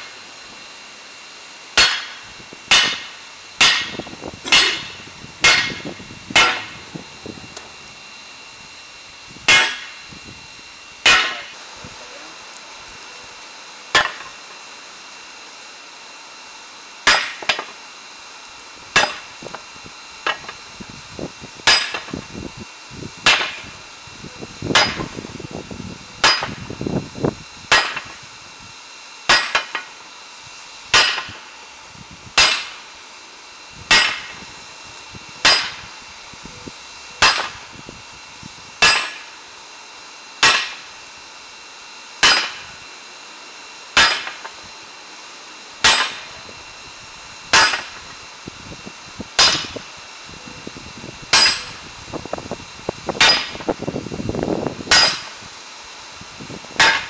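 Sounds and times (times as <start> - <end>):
hammer striking metal: 1.8 - 6.8, 9.5 - 10.0, 11.0 - 11.5, 13.9 - 14.3, 17.1 - 17.7, 21.7 - 22.1, 26.2 - 26.6, 29.3 - 29.9, 31.0 - 31.3, 32.4 - 32.8, 33.9 - 34.3, 35.4 - 35.8, 37.2 - 37.6, 38.8 - 39.3, 40.4 - 40.8, 42.2 - 42.7, 44.0 - 44.5, 45.8 - 46.3, 47.5 - 48.0, 49.4 - 49.8, 51.3 - 51.8, 53.2 - 53.6, 54.9 - 55.3, 56.8 - 57.0.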